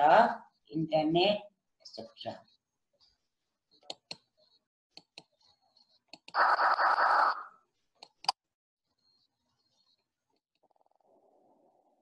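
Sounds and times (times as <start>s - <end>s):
computer mouse clicks: 6.1s - 6.4s.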